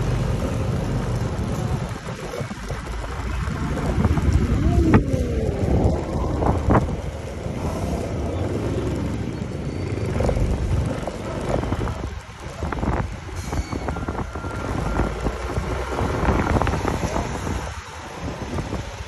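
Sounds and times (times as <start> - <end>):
scooter engine rumble: 0.0 - 19.0
wind on microphone: 1.2 - 19.0.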